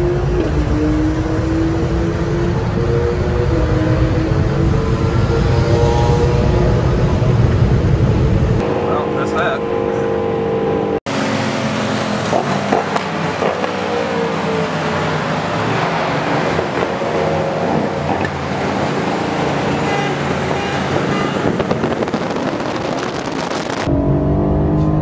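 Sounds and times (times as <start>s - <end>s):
in-cabin engine drone: 0.0s - 12.0s
motorcycle engines humming: 0.0s - 25.0s
wind and road noise: 0.0s - 25.0s.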